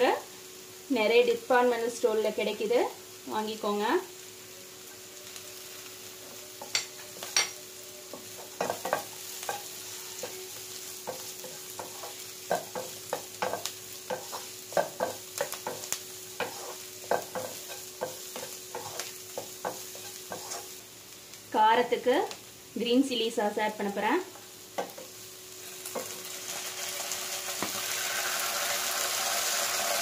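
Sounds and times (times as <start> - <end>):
vegetables sizzling in oil: 0.0 - 30.0
wooden spatula scraping a pan: 16.4 - 20.8.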